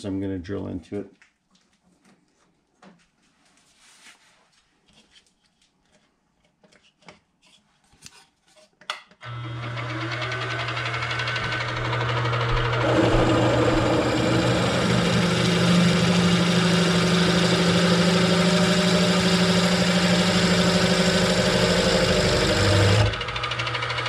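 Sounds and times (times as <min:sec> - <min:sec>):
drill bit grinding steel: 0:09.2 - 0:24.0
drill motor humming: 0:09.2 - 0:24.0.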